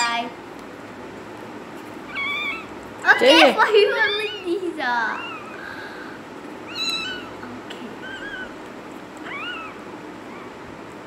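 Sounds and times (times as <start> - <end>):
kitten mewing: 2.1 - 2.8, 4.0 - 5.6, 6.6 - 10.6.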